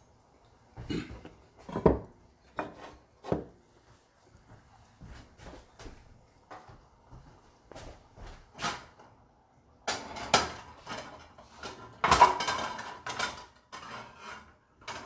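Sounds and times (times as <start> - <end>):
pots and pans clattering: 0.9 - 3.4, 9.8 - 15.0.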